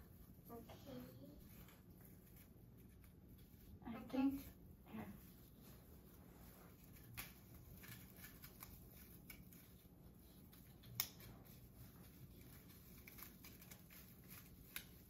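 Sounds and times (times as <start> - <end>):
artificial tree rustling and clicking: 0.0 - 15.0.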